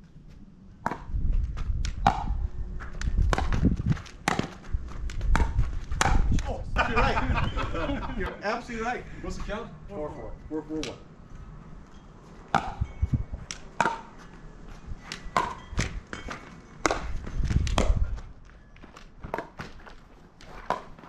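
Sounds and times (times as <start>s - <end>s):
ball bouncing on court: 3.2s - 6.4s, 12.5s - 12.8s, 15.1s - 18.0s.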